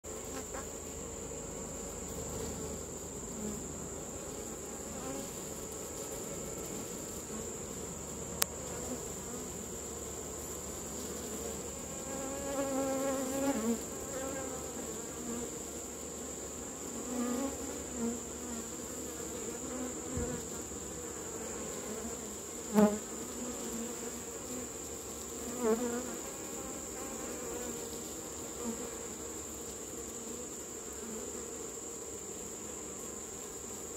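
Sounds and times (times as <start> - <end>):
bee flying close: 0.0 - 33.9
honeybees buzzing: 0.0 - 33.9.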